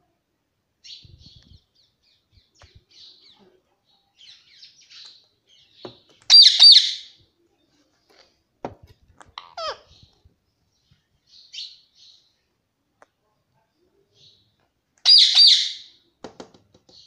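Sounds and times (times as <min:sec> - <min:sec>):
parakeet chirping: 0:04.2 - 0:07.2, 0:09.2 - 0:10.2, 0:15.0 - 0:15.9
parakeet shrill calls: 0:06.3 - 0:07.2, 0:09.3 - 0:10.1, 0:15.0 - 0:15.9.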